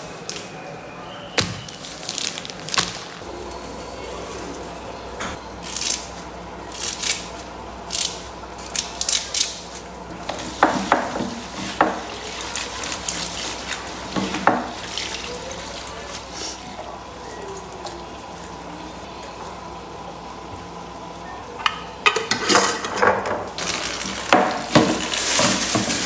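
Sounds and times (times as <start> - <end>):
leaves rustled by hand: 1.6 - 5.0, 23.6 - 26.0
running tap water: 10.3 - 16.4, 23.6 - 26.0.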